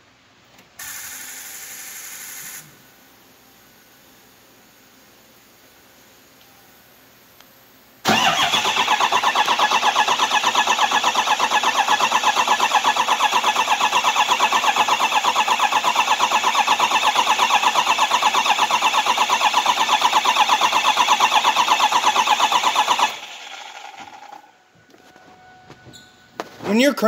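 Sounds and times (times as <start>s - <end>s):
diesel engine cranking on starter: 8.0s - 24.5s.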